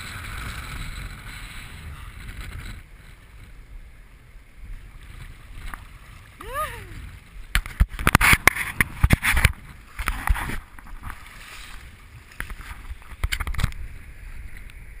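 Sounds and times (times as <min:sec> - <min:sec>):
seawater splashing over rocks: 0:04.6 - 0:14.6.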